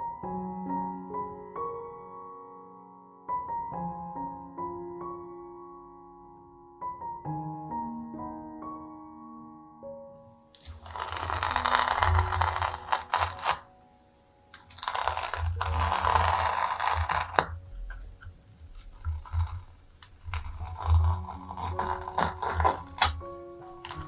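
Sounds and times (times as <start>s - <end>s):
pencil scratching on paper: 14.7s - 18.0s, 18.7s - 24.0s.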